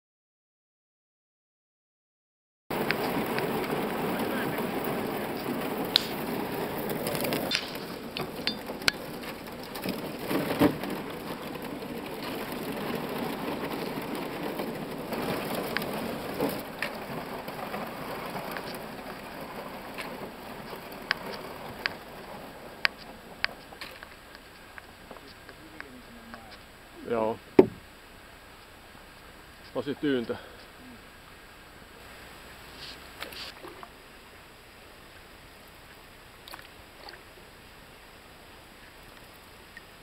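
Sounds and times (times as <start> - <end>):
thin ice crackling and crunching: 5.7 - 23.0
sharp ice cracks: 5.9 - 6.4, 7.0 - 9.2.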